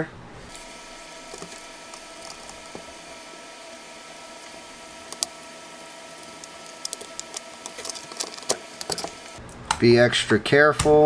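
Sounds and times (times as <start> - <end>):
fan-like hum and hiss: 0.0 - 11.0
faint steady tones: 0.4 - 9.4
plastic case being handled: 0.6 - 9.4.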